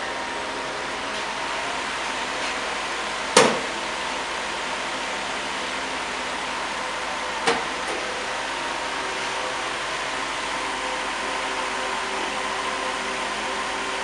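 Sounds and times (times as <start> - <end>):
machine blower whirring: 0.0 - 14.0.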